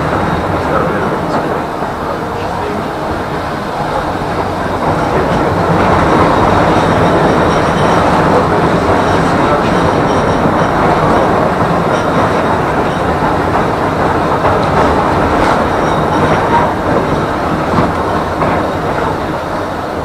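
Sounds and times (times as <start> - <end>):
tram wheels rolling on rails: 0.0 - 20.0.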